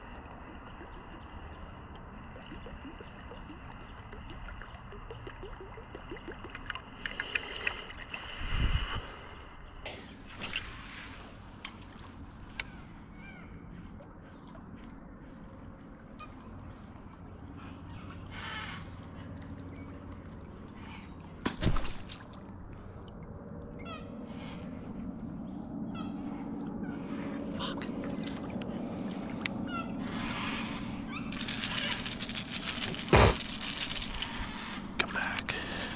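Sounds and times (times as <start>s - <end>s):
fishing lure churning water: 0.0s - 8.3s, 27.0s - 35.9s
small birds chirping: 28.5s - 35.9s.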